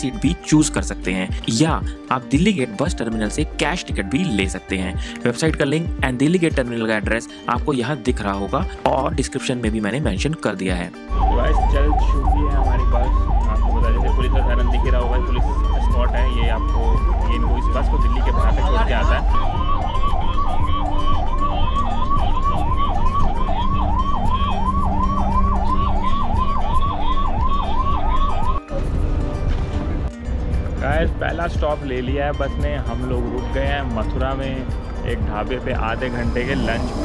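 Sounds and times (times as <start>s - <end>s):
police siren yelping: 11.0s - 29.5s
bus rumble: 28.6s - 31.8s, 32.8s - 37.0s.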